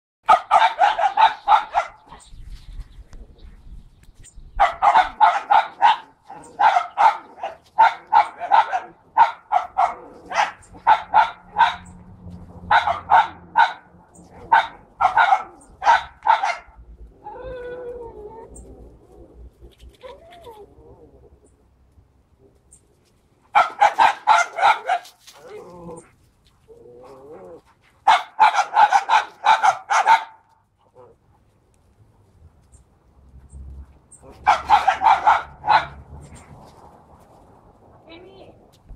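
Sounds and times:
dog barking: 0.2 - 2.2, 4.6 - 11.9, 12.7 - 16.8, 23.5 - 25.2, 28.0 - 30.5, 34.3 - 36.0
dog whining: 17.2 - 19.2, 20.0 - 21.4.

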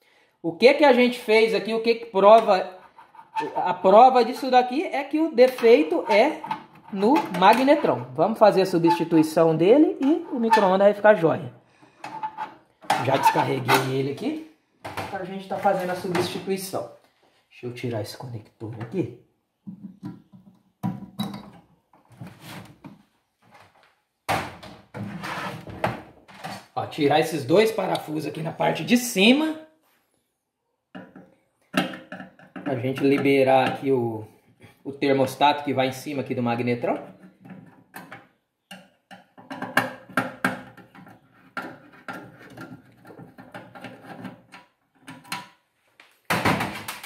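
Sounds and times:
sheet metal rubbing and scraping: 2.6 - 3.8, 5.6 - 9.3, 10.0 - 10.9, 12.0 - 13.9, 25.0 - 26.8.

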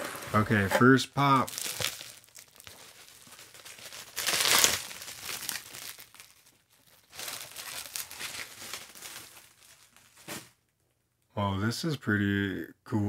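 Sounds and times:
bubble wrap crinkling: 1.2 - 10.6.

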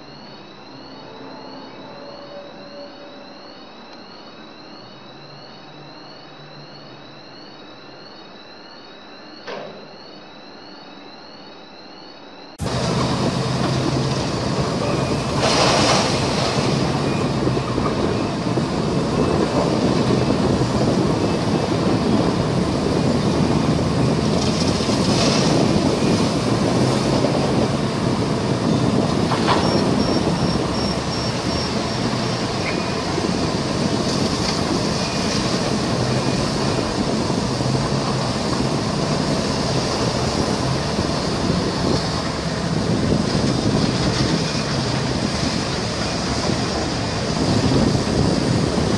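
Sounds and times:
mechanical rumble with hiss: 12.3 - 48.9.

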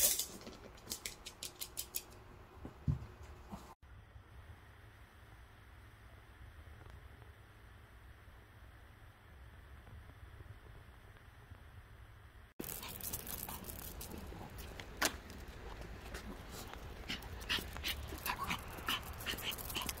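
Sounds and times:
dog panting: 15.5 - 20.0.

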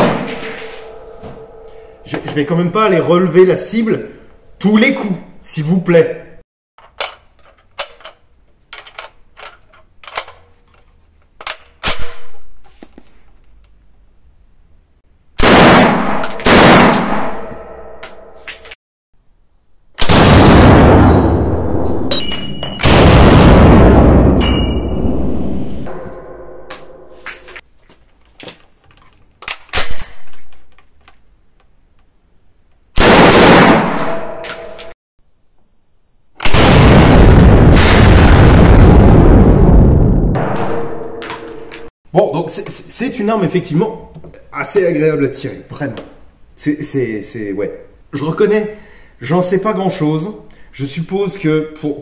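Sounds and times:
rifle gunshot: 0.0 - 1.0, 15.4 - 17.4, 20.0 - 21.2, 33.0 - 34.3.

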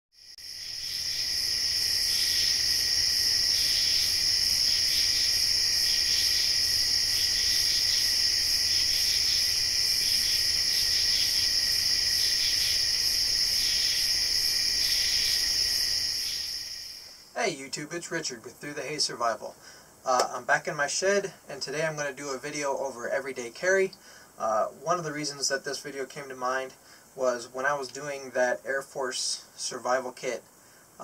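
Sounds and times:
insect chorus chirping: 0.2 - 31.0.

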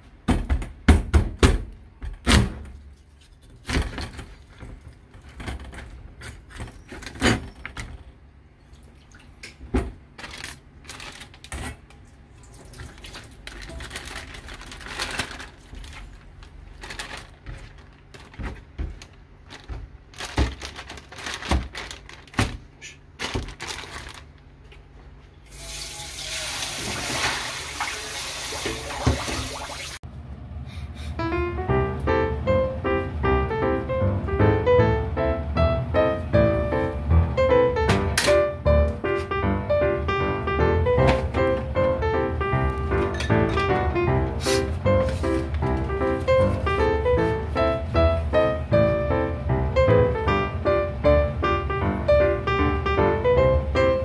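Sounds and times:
tap running into sink: 25.7 - 29.9.

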